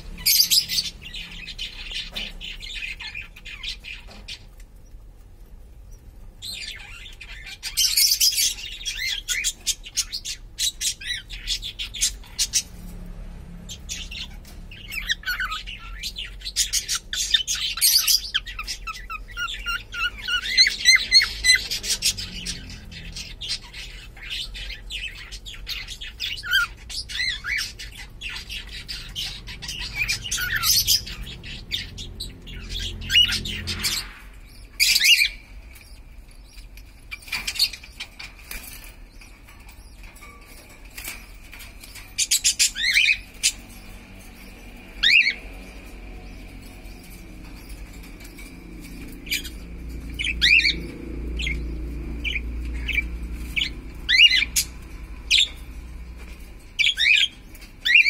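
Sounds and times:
cockatiel chirping: 0:06.4 - 0:12.7.

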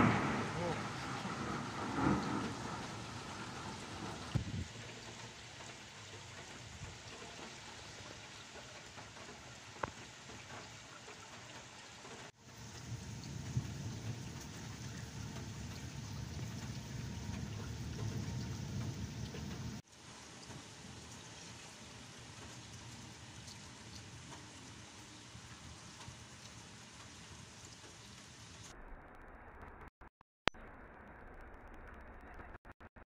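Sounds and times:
low rumble: 0:00.0 - 0:04.8, 0:12.6 - 0:19.8
rain hissing: 0:00.0 - 0:28.8.

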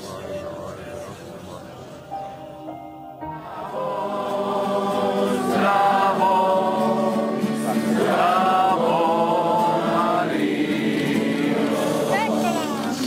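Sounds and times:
group singing a hymn: 0:03.2 - 0:13.0.

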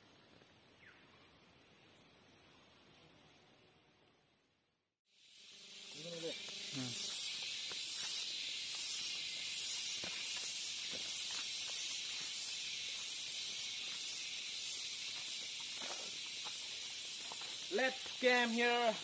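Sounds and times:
insects buzzing: 0:05.1 - 0:19.0
faint footsteps on forest path: 0:06.2 - 0:19.0.

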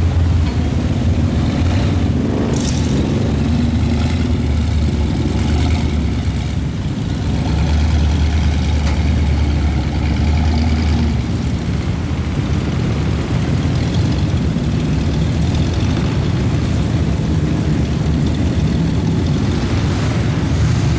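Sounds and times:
heavy truck engines under load: 0:00.0 - 0:20.9.

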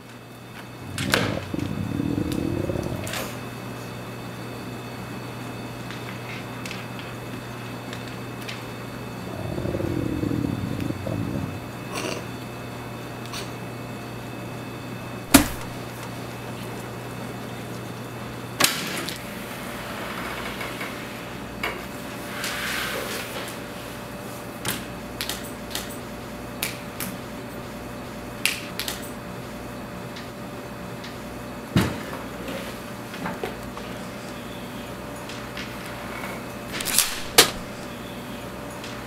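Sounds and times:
low steady hum: 0:00.6 - 0:04.4, 0:08.7 - 0:12.4.

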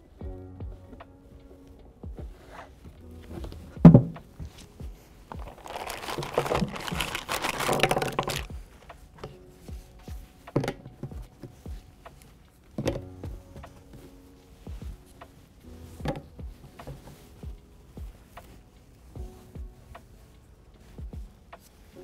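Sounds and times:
plastic crinkling: 0:05.3 - 0:08.6.

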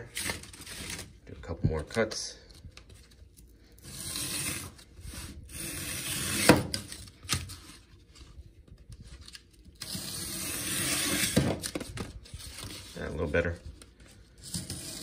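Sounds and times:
utility knife cutting cardboard: 0:03.8 - 0:07.5, 0:09.8 - 0:11.7, 0:14.4 - 0:15.0.

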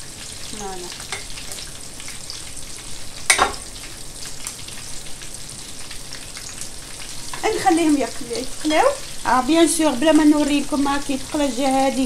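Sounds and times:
potatoes sizzling in oil: 0:00.0 - 0:12.0
spoon clinking: 0:03.3 - 0:03.6.

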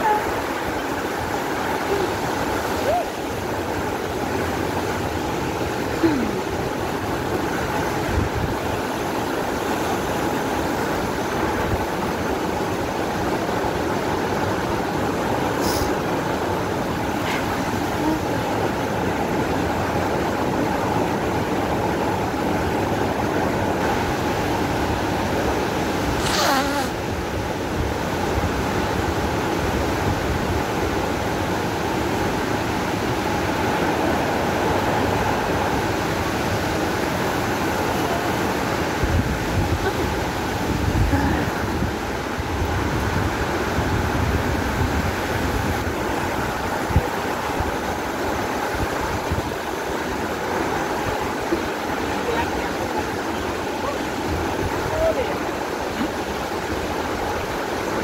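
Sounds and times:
waterfall roar: 0:00.0 - 0:58.0.

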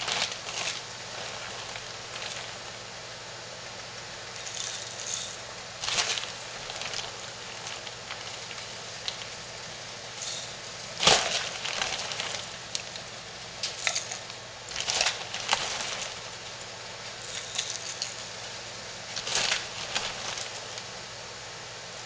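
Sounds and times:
wax pellets rattling into glass: 0:04.4 - 0:08.8, 0:10.2 - 0:12.5, 0:17.2 - 0:18.4.

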